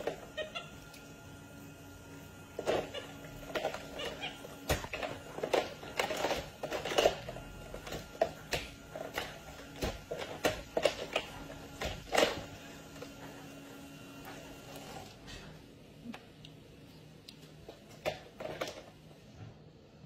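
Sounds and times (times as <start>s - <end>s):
plastic dishes clattering: 2.6s - 12.5s.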